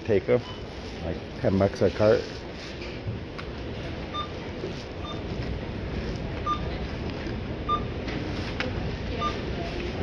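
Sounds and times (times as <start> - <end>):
low hum of store noise: 0.0 - 10.0
barcode scanner beeps: 4.1 - 4.4, 5.0 - 5.4, 6.4 - 6.8, 7.6 - 8.0, 9.1 - 9.6.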